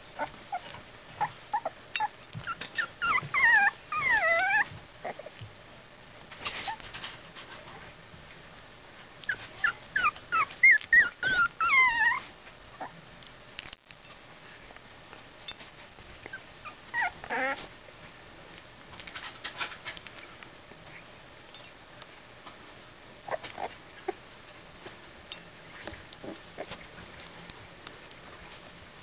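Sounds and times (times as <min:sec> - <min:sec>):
puppies whimpering: 0:00.2 - 0:05.3, 0:09.3 - 0:12.9, 0:16.3 - 0:17.7.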